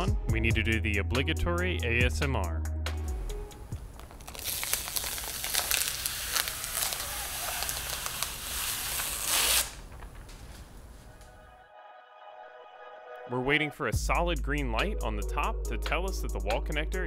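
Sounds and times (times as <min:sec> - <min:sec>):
plastic film peeling off: 0:03.8 - 0:11.1.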